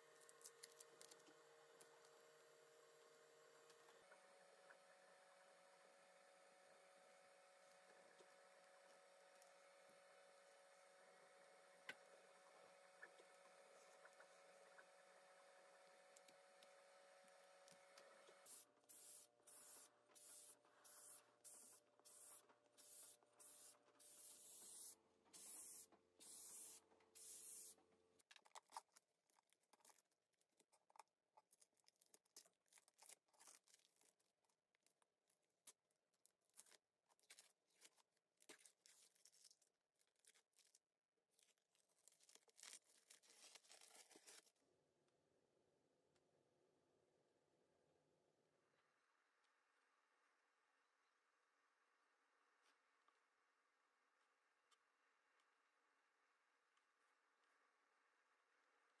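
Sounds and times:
tape peeling crackle: 0:00.2 - 0:02.0, 0:36.5 - 0:44.5.

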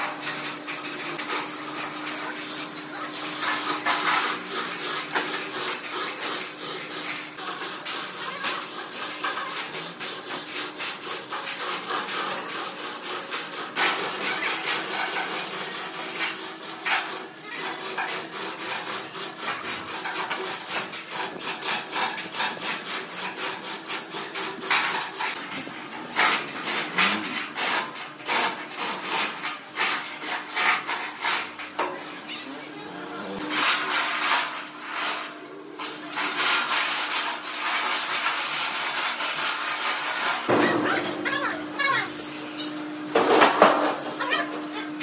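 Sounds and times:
hand tool rasping on metal: 0:02.3 - 0:31.8.

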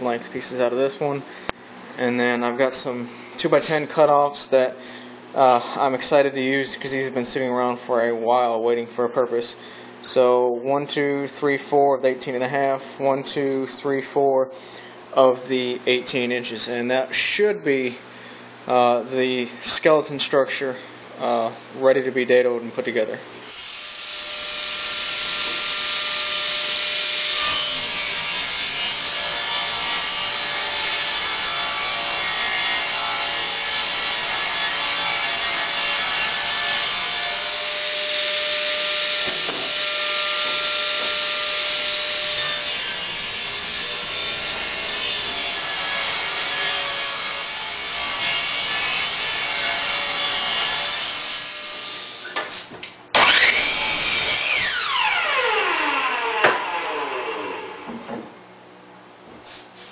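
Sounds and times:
table saw ripping wood: 0:23.4 - 0:52.3, 0:53.2 - 0:57.9
miter saw whine: 0:53.2 - 0:57.9.

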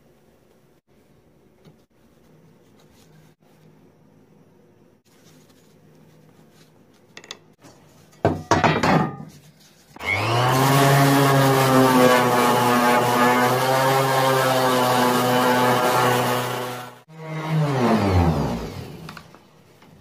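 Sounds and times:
orbital sander on metal: 0:10.0 - 0:18.3.

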